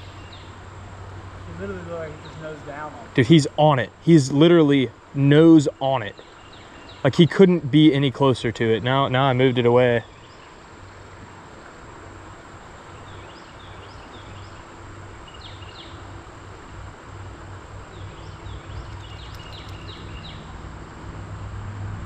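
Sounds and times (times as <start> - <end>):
bird chirping: 0.0 - 0.6, 1.5 - 3.6, 5.7 - 7.3, 10.0 - 10.6, 12.9 - 16.2, 17.9 - 20.6
high insect drone: 0.0 - 22.0.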